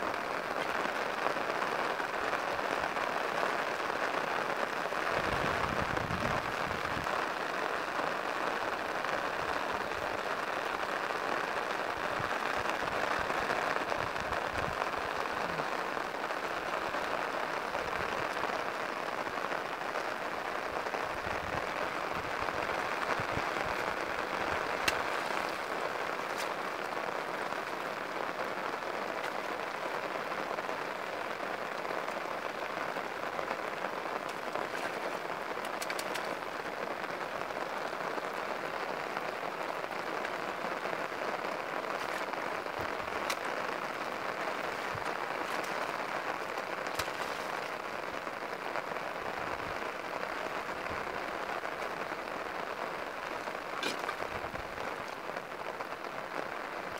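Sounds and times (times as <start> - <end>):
rain on floodwater and grass: 0.0 - 56.9
sharp clicks and splashes: 21.1 - 28.1, 29.0 - 29.9, 34.1 - 37.3, 41.8 - 48.2, 53.0 - 55.5.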